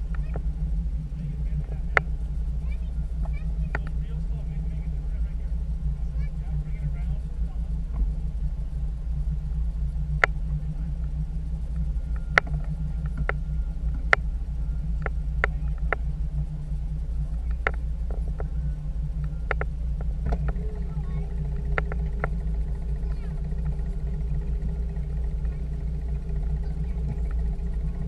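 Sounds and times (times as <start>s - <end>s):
outboard motor rumbling: 0.0s - 28.0s
sharp clicks and knocks: 11.7s - 14.3s, 15.0s - 16.1s, 17.4s - 18.6s, 19.2s - 20.8s, 21.5s - 28.0s.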